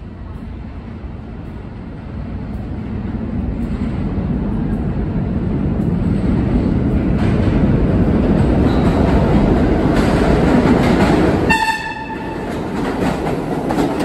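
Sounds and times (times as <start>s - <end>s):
subway train rumbling in tunnel: 0.0s - 14.0s.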